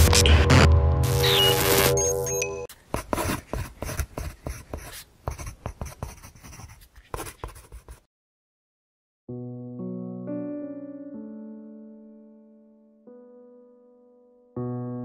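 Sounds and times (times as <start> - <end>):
pen scratching on paper: 2.7 - 8.1
soft piano music: 9.3 - 15.0.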